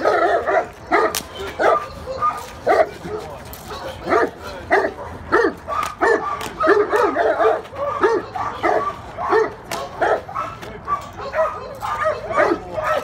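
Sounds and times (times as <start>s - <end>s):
dog barking sharply: 3.7s - 13.0s.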